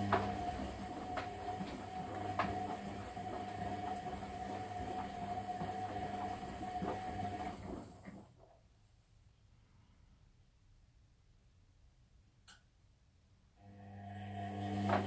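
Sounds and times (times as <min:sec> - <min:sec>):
washing machine motor hum: 0:00.0 - 0:08.3, 0:13.6 - 0:15.0.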